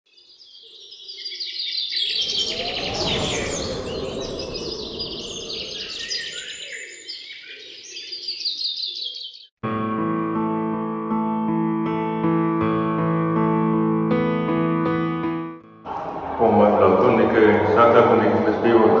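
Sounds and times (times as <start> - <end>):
small birds chirping: 0.1 - 9.6
rushing whoosh: 2.2 - 6.4, 15.8 - 19.0.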